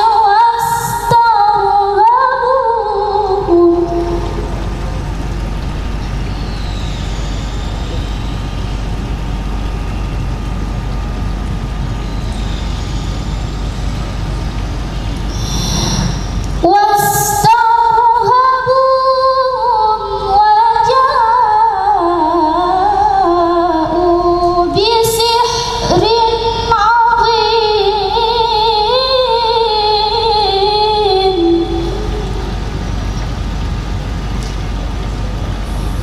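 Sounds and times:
woman reciting melodically: 0:00.0 - 0:04.9, 0:16.6 - 0:32.6
steady background noise: 0:00.0 - 0:36.0.

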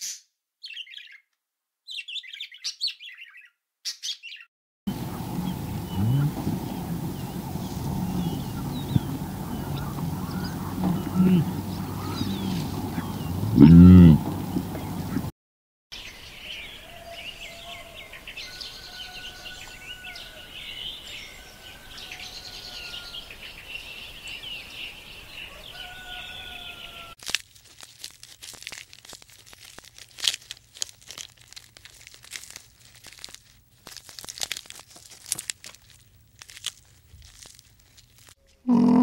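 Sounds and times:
birds chirping and whistling: 0:00.6 - 0:01.2, 0:01.9 - 0:15.3, 0:16.0 - 0:27.1
animal tearing and chewing grass: 0:05.4 - 0:14.9, 0:27.2 - 0:38.6.

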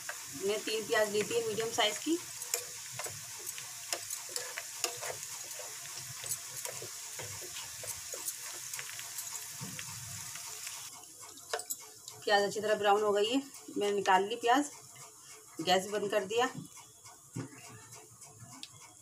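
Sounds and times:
onions sizzling in oil: 0:00.0 - 0:14.5
spoon stirring: 0:01.1 - 0:10.3, 0:11.3 - 0:11.8.

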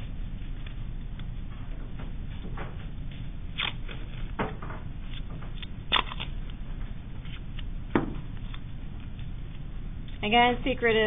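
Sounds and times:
steady low hum: 0:00.0 - 0:11.0
tape ripping: 0:03.6 - 0:04.1, 0:05.9 - 0:06.4.

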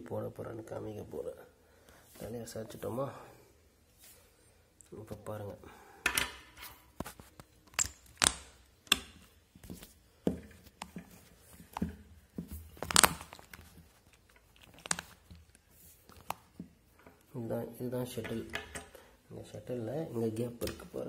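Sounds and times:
handling clicks taps and rustles: 0:04.8 - 0:17.3, 0:18.2 - 0:19.0, 0:20.3 - 0:21.0.

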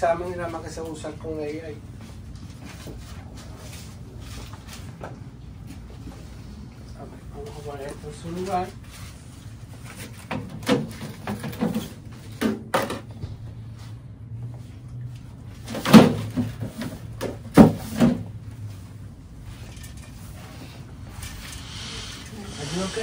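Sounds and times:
knocks and clatters in cabinet: 0:10.3 - 0:13.1, 0:15.6 - 0:18.3.

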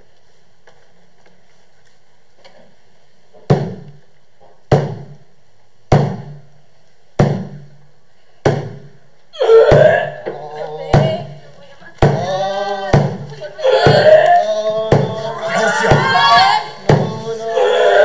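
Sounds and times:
large drum strokes: 0:12.9 - 0:17.4.

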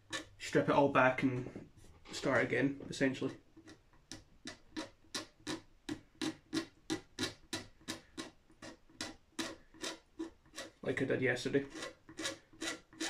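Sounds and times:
razor blade scraping wood finish: 0:00.1 - 0:00.4, 0:04.4 - 0:11.0, 0:11.6 - 0:13.0.

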